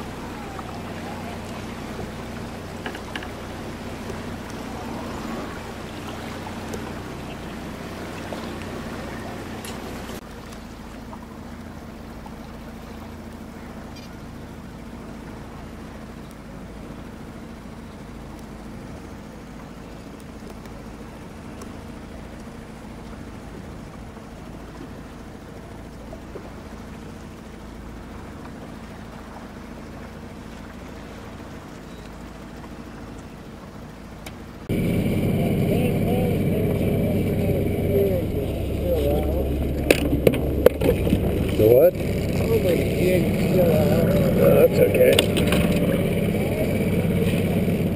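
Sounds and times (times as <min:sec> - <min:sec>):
water hissing: 0:00.0 - 0:10.2
boat motor humming: 0:00.0 - 0:47.9.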